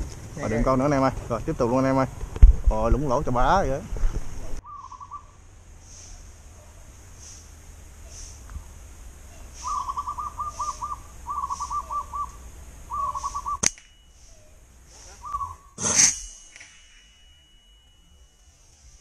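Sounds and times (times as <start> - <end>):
bird hooting: 4.6 - 5.4, 9.3 - 16.0
faint high pulsing: 10.7 - 19.0
slingshot snap: 13.6 - 14.0.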